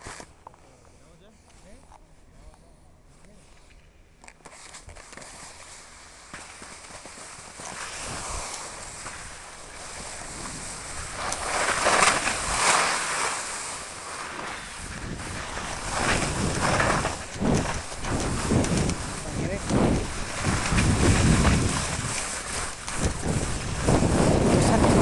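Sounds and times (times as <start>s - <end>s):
skis scraping over crusty snow: 4.4s - 25.0s
wind buffeting microphone: 8.0s - 12.6s, 14.7s - 25.0s.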